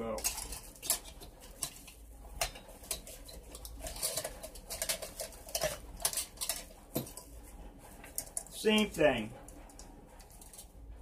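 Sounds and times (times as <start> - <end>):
lantern frame clicks and rattles: 0.0 - 10.8.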